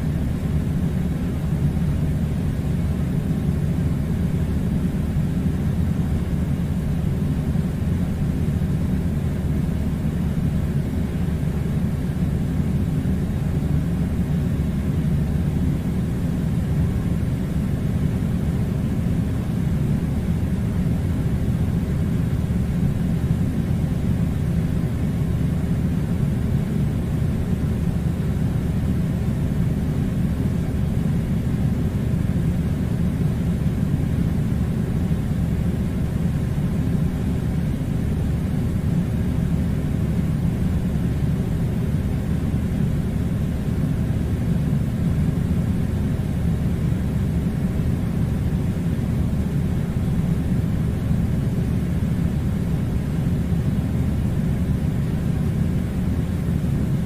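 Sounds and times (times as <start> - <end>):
air conditioner whirring: 0.0 - 57.0.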